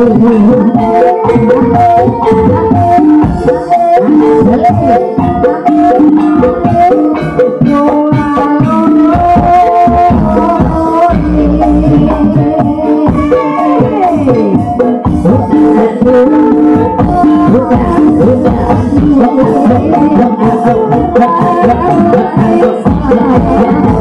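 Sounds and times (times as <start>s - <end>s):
gamelan music: 0.0s - 24.0s.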